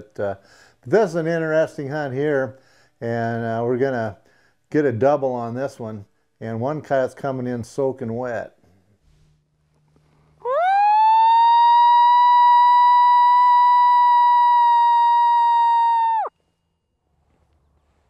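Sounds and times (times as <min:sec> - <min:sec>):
coyote howler call: 0:10.4 - 0:16.3.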